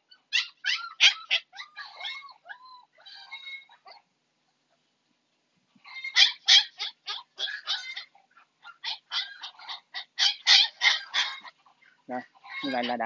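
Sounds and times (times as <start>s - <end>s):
puppy squealing and yelping: 0.0s - 4.1s, 5.8s - 13.0s.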